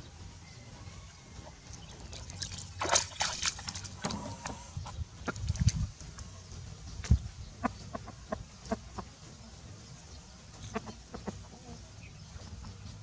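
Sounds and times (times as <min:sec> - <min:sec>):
rooster clucking: 0:07.6 - 0:09.2.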